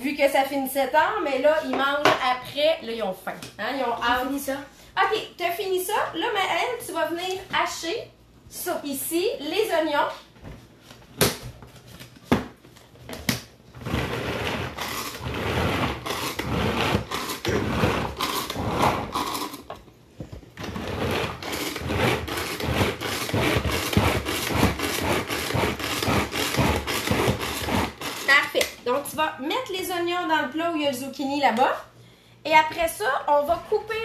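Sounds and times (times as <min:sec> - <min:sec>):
food chopper whirring and rattling: 0:13.8 - 0:19.7, 0:20.6 - 0:28.3.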